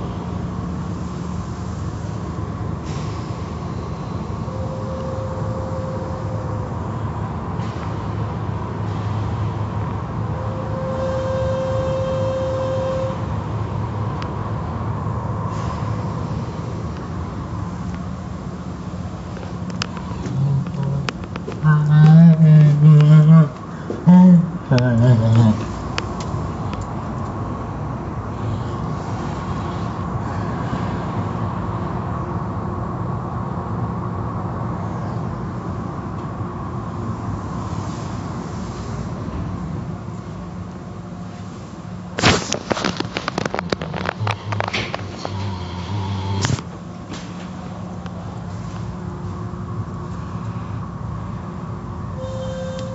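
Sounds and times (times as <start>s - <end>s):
low rumble of wash machinery: 0.0s - 52.9s
steady whine: 0.0s - 52.9s.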